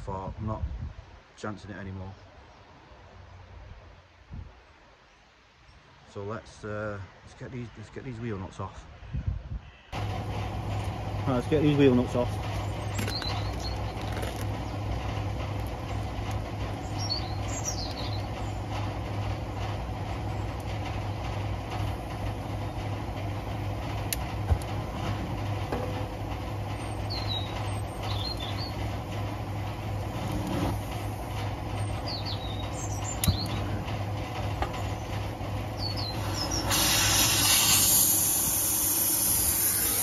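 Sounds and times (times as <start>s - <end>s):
birds chirping: 5.0s - 40.0s
steady low hum: 10.0s - 40.0s.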